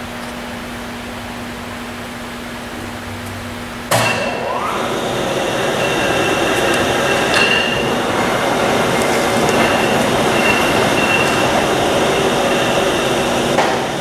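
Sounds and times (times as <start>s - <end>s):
thin high whine: 2.7s - 14.0s
lathe running: 3.9s - 14.0s
light metallic clinking: 5.4s - 13.4s.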